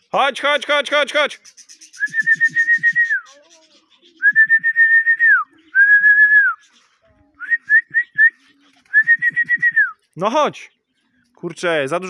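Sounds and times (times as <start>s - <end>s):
person whistling: 2.0s - 3.2s, 4.2s - 6.6s, 7.4s - 10.0s.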